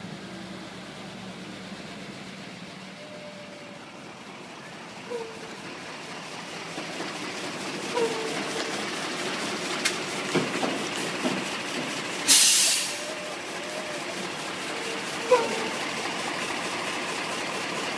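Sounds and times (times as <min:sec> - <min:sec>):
diesel truck engine running: 0:00.0 - 0:17.9
air brake hiss: 0:12.2 - 0:13.2.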